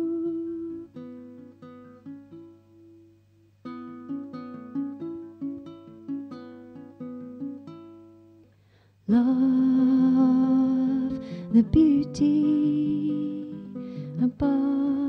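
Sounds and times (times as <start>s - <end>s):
plucked string instrument melody: 3.6s - 8.3s.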